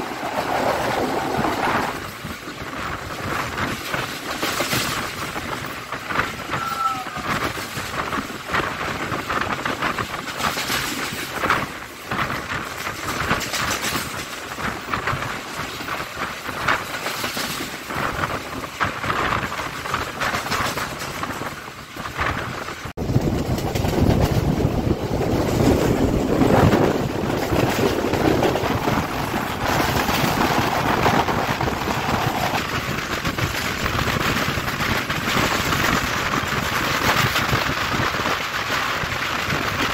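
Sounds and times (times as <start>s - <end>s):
deep train rumble: 0.0s - 39.9s
rushing wind: 0.0s - 39.9s
train wheels clattering on rails: 0.0s - 39.9s.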